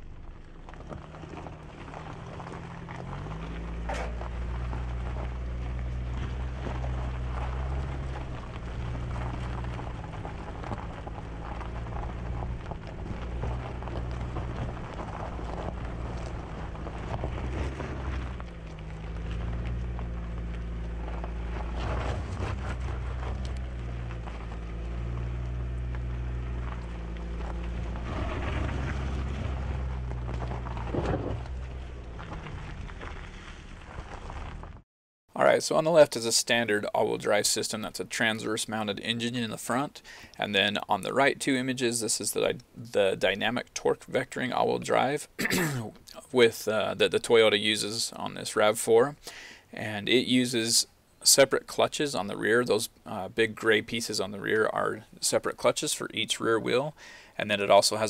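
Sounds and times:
tyres crunching over gravel: 0.0s - 34.8s, 35.4s - 58.0s
wind rumble: 0.0s - 34.8s.

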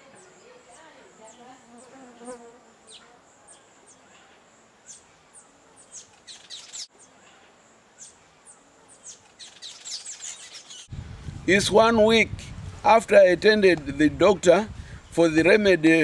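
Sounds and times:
birds chirping: 0.0s - 10.9s.

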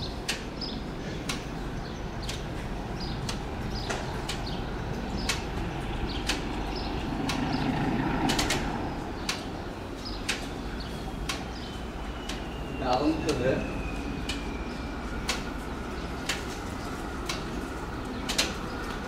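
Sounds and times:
diesel locomotive engine running: 0.0s - 19.0s
sharp clicks: 2.2s - 2.6s, 3.2s - 9.5s, 10.1s - 10.6s, 11.2s - 11.6s, 12.2s - 12.5s, 15.2s - 15.5s, 16.2s - 16.5s, 17.2s - 19.0s.

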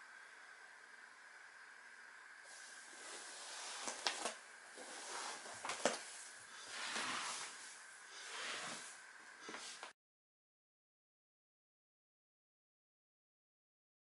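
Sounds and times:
faint steady hiss: 0.0s - 9.9s
rustling on exercise mats: 2.5s - 10.0s.

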